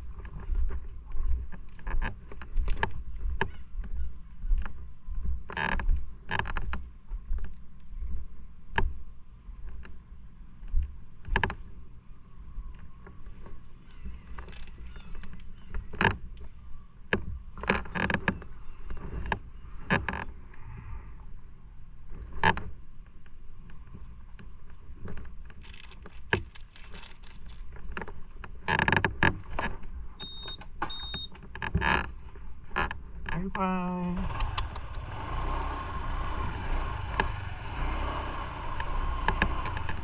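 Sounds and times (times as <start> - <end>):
low steady rumble: 0.0 - 40.0
short high beeps: 30.2 - 31.3.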